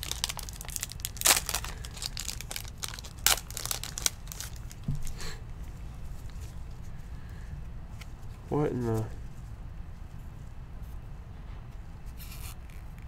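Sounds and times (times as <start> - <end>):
foil wrapper crinkling: 0.0 - 5.1.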